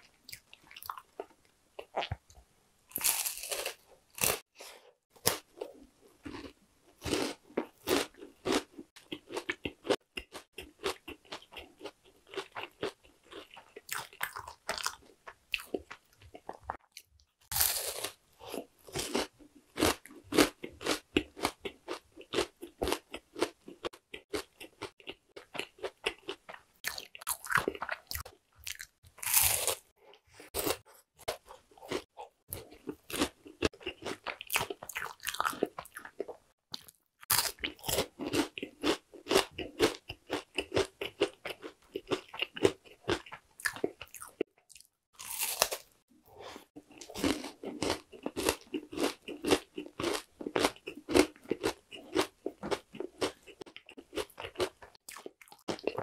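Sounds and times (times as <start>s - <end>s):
crunchy chewing of puffed grain bar: 2.9s - 46.0s, 46.8s - 56.0s.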